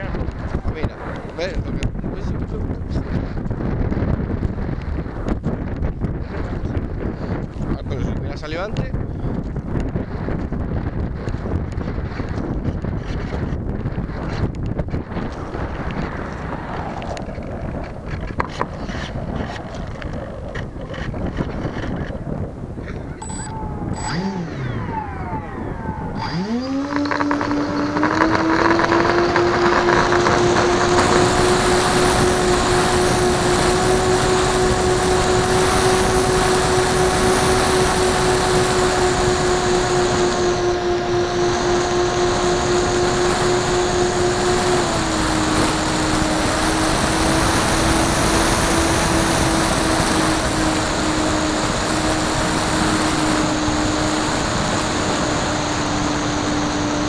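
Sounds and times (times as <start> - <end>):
model airplane motor droning: 23.2 - 57.0.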